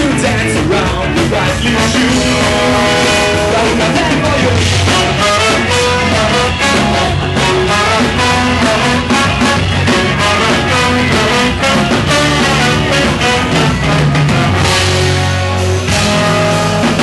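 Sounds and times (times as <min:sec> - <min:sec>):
punk band playing live: 0:00.0 - 0:17.0
steady drum beat: 0:00.0 - 0:17.0.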